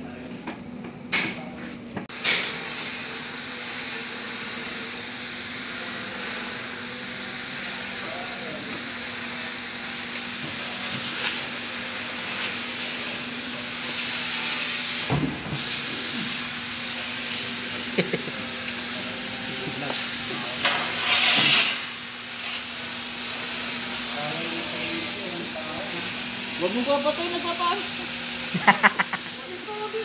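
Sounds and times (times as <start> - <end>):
machine whine and hum: 0.0 - 30.0
loud hissing burst: 10.6 - 30.0.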